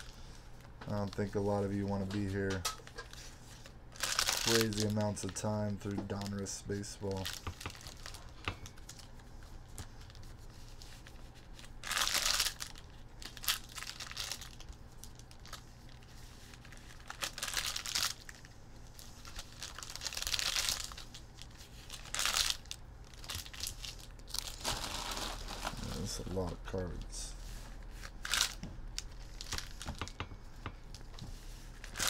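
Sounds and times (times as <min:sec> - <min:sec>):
card pack wrappers tearing: 0:03.9 - 0:08.2, 0:11.6 - 0:16.0, 0:16.6 - 0:18.4, 0:19.2 - 0:27.2, 0:27.8 - 0:29.8, 0:31.8 - 0:32.0.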